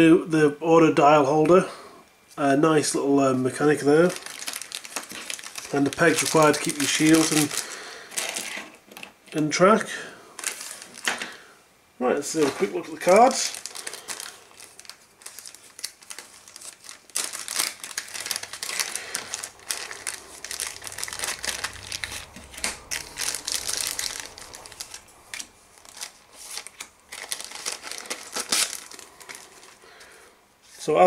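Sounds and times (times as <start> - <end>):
plastic wrapping crinkling: 3.5 - 9.2, 10.4 - 11.4, 12.2 - 30.2.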